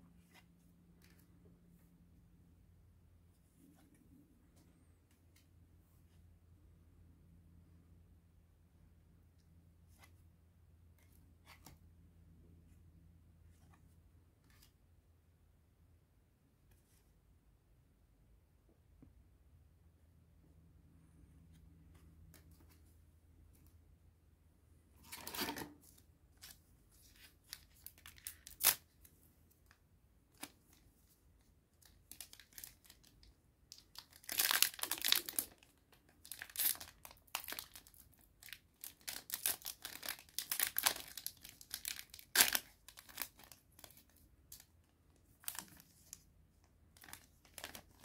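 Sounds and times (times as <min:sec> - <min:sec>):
foil pack crinkling and tearing: 0:33.9 - 0:44.1.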